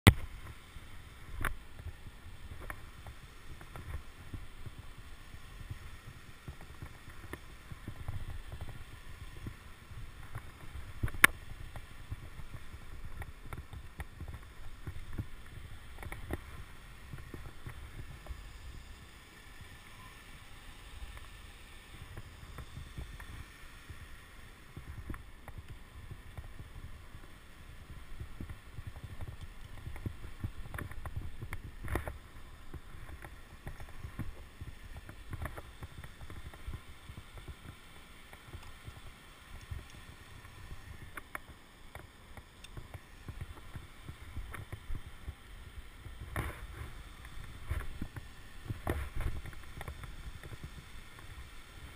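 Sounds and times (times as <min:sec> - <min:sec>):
wind rumbling on microphone: 0:00.1 - 0:51.9
clicks and knocks of climbing: 0:24.8 - 0:45.4.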